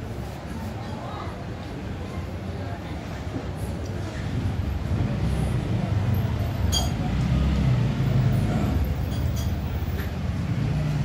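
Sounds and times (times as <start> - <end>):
cutlery clinking on plates: 6.7 - 7.0, 9.1 - 10.1.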